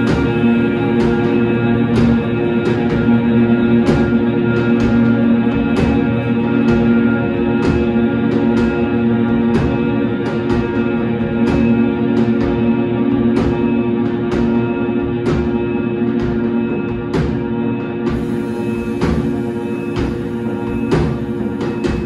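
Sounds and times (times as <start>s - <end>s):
guitar and bass drone: 0.0s - 22.0s
cymbal hits: 18.1s - 22.0s.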